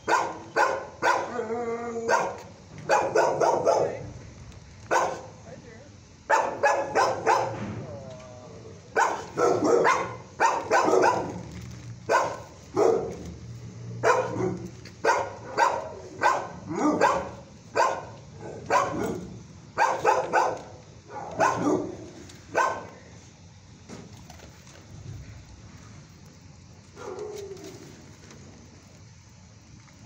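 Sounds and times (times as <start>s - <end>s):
dog barking: 0.0s - 1.4s, 2.1s - 4.0s, 4.9s - 5.3s, 6.3s - 7.6s, 9.0s - 11.4s, 12.1s - 13.3s, 14.0s - 22.9s.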